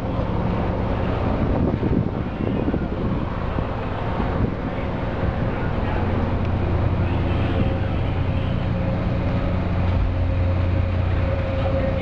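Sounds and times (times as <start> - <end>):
low machinery hum: 0.0 - 12.0.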